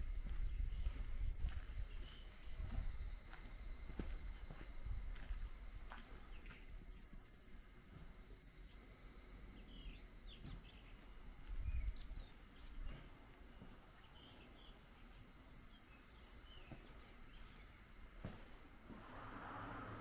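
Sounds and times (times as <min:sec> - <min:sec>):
small birds chirping: 0:00.0 - 0:03.4, 0:06.0 - 0:07.2, 0:08.6 - 0:18.0
insects trilling: 0:00.0 - 0:20.0.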